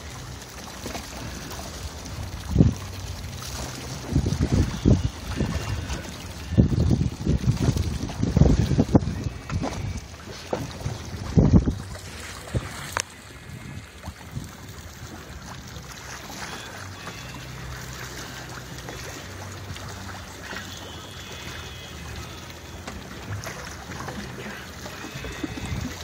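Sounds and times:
water lapping against boat hull: 0.0 - 26.0
wind on microphone: 1.2 - 15.6, 25.1 - 26.0.

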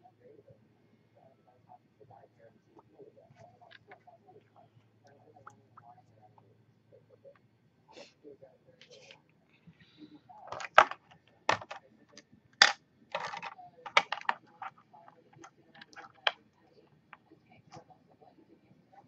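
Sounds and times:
plastic containers clattering on desk: 10.5 - 11.8, 12.6 - 14.8, 15.4 - 16.4.

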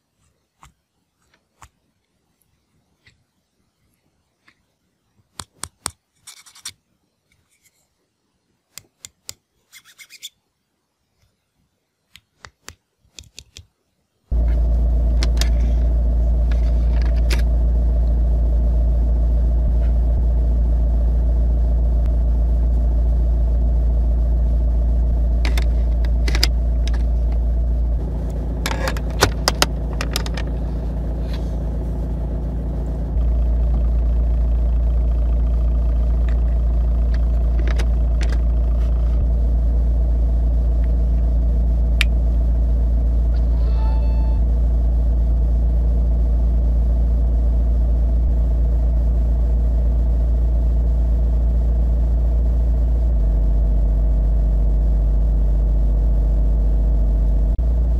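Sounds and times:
car engine idling: 14.3 - 57.9
metal charger clicking: 28.2 - 30.6.

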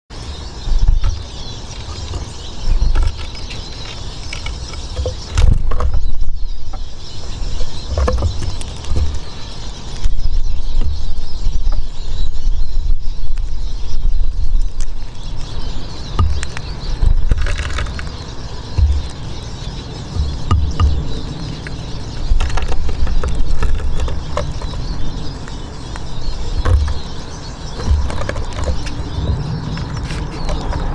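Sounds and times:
faint high bird chirps: 0.1 - 30.9
heavy low rumble: 0.2 - 30.9
sharp clicks and knocks: 0.7 - 6.9, 7.6 - 9.3, 14.2 - 19.3, 20.1 - 30.9.

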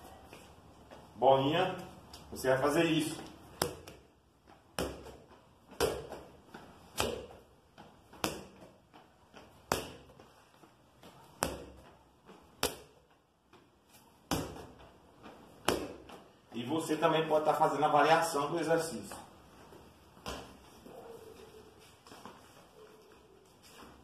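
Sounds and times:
ball bouncing on tiled floor: 3.0 - 16.6, 19.1 - 23.0.

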